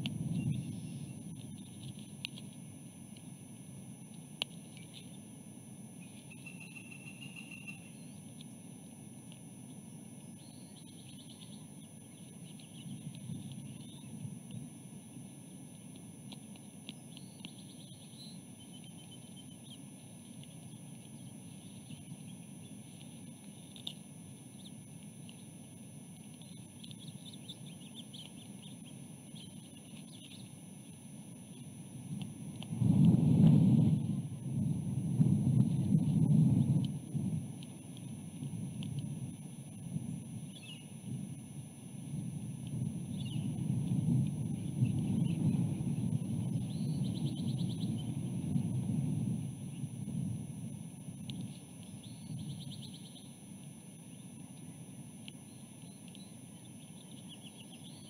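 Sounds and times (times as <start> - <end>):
low wind rumble: 0.0 - 1.9, 32.0 - 52.9
bird chirps and trills: 0.2 - 2.1, 6.0 - 8.4, 9.6 - 15.2, 16.8 - 31.8, 39.7 - 41.0, 43.0 - 43.6, 44.5 - 48.2, 51.2 - 53.4, 55.4 - 58.0.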